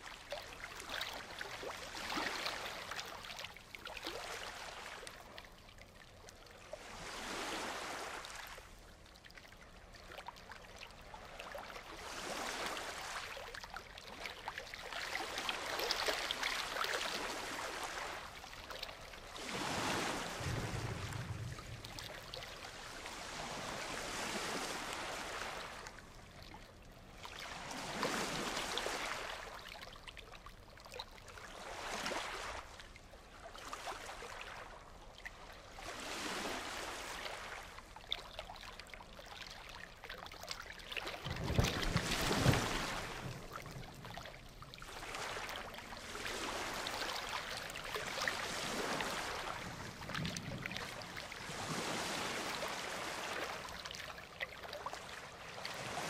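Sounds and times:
ocean waves breaking: 6.8 - 8.6, 19.4 - 26.2, 27.4 - 29.6, 41.2 - 53.8, 54.9 - 56.0.

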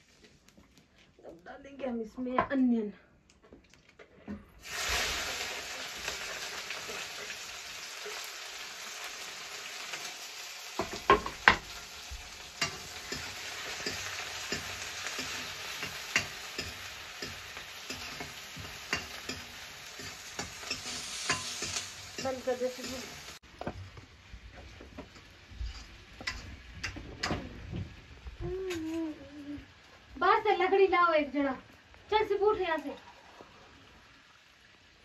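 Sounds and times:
onion sizzling in hot oil: 4.6 - 35.0
spoon scraping a pan: 12.6 - 23.9, 24.6 - 27.4.

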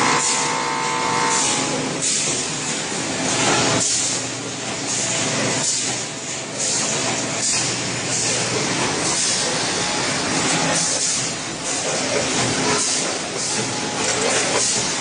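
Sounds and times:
packaging machines running: 0.0 - 15.0.

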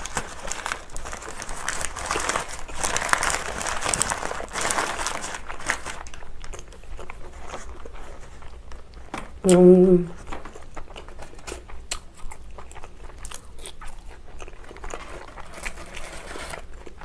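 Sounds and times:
paper wrapper crinkling: 0.0 - 9.1, 14.5 - 17.0
person chewing: 5.4 - 17.0.

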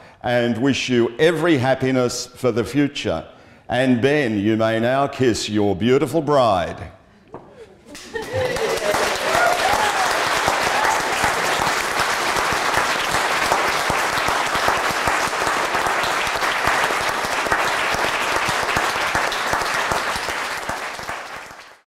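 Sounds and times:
crowd applauding: 8.0 - 21.8.

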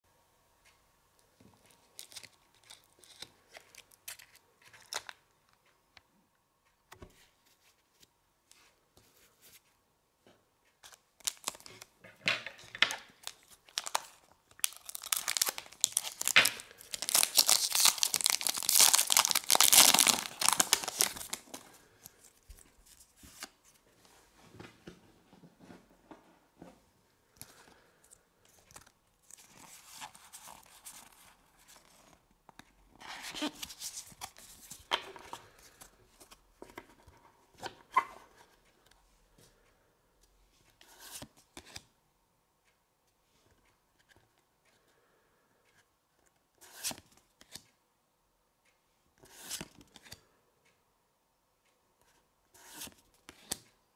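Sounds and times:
foil wrapper crinkling and tearing: 13.6 - 21.5.

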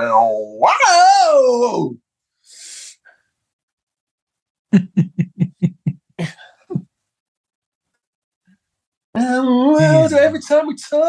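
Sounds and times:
breathy hiss: 2.4 - 3.2
man making short voiced sounds: 9.2 - 10.4.

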